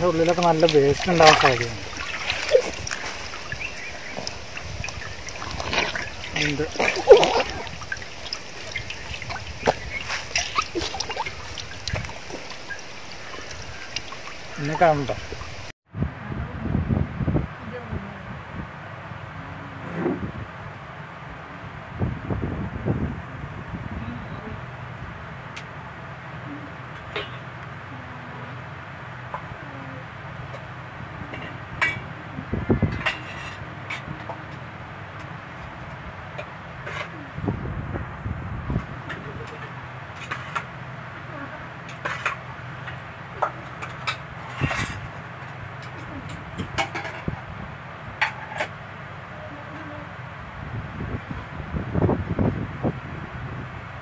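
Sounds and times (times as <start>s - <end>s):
small splashes: 0.0s - 15.7s
water dripping and trickling: 0.0s - 15.7s.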